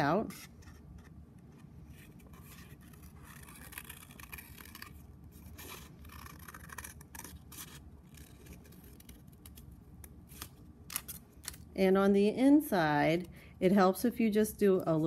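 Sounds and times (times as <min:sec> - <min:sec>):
scissors snipping paper: 0:02.3 - 0:09.7.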